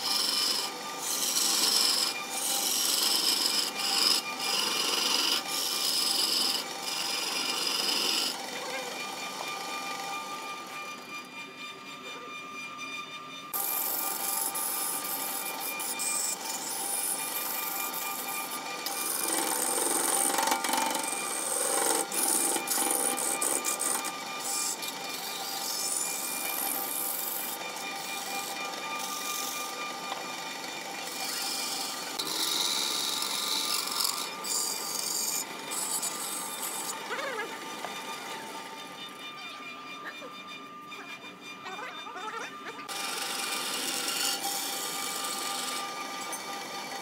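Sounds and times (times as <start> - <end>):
tool scraping wood shavings: 0.0 - 12.6, 13.5 - 47.0
wood lathe humming: 0.0 - 47.0.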